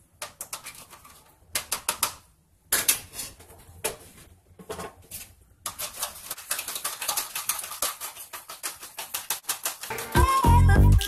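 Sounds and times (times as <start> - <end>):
fork beating dressing in plastic container: 5.7 - 10.0.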